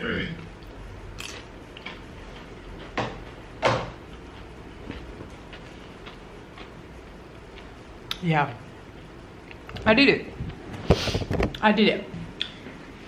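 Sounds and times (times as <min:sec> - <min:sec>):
chips crunching while chewed: 0:01.2 - 0:02.0.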